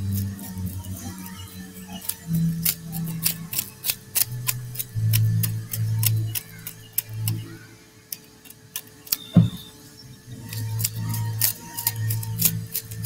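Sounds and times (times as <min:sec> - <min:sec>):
steady low hum: 0:00.0 - 0:13.0
dull thump: 0:09.3 - 0:09.8.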